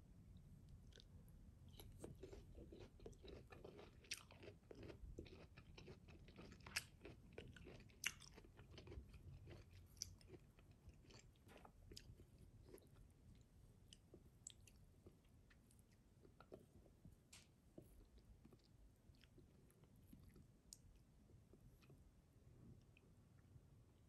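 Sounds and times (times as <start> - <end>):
chewing crisp mango: 0.8 - 1.1, 1.7 - 16.7.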